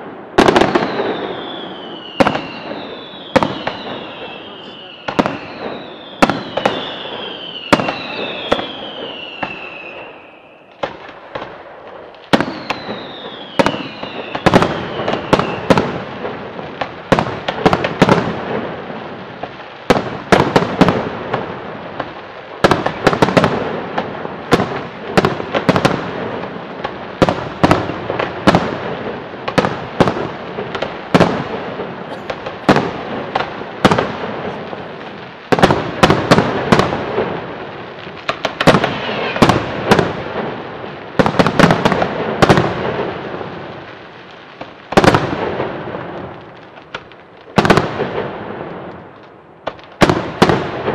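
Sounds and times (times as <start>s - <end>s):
fireworks bangs: 0.0s - 50.9s
fireworks whistles falling: 0.4s - 11.1s, 12.2s - 16.0s, 38.4s - 40.1s.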